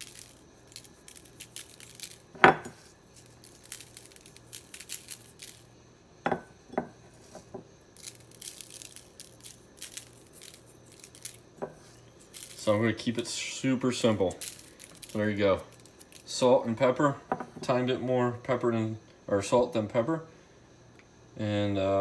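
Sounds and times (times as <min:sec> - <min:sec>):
seasoning shaker rattling: 0:00.0 - 0:17.4.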